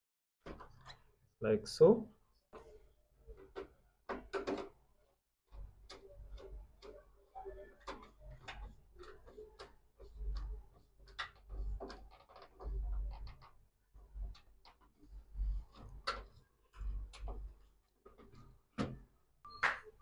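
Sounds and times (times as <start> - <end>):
cable clicking and tapping on terminals: 3.4 - 4.7.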